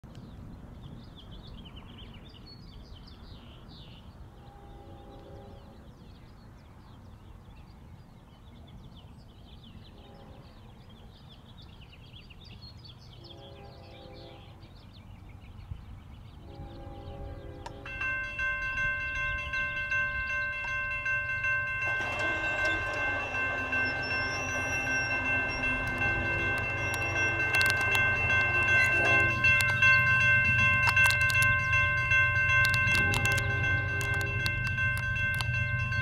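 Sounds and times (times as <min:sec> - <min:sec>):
distant locomotive air horn: 0:04.4 - 0:05.9, 0:09.9 - 0:10.7, 0:13.2 - 0:14.7, 0:16.4 - 0:18.4, 0:21.8 - 0:35.4
birds chirping: 0:08.5 - 0:36.0
low wind rumble: 0:12.8 - 0:36.0.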